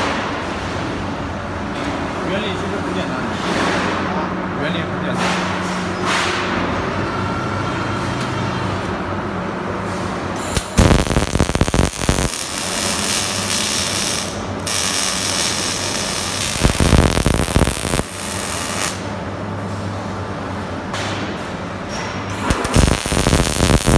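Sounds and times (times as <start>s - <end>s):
welding arc crackling hiss: 10.4s - 19.1s, 22.4s - 23.9s
welding machine humming: 10.4s - 19.3s, 22.3s - 23.9s.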